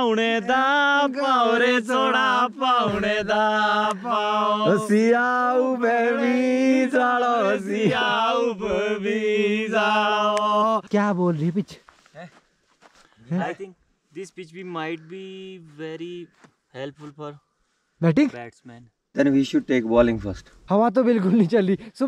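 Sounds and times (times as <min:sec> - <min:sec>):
man singing slow melody: 0:00.0 - 0:10.9.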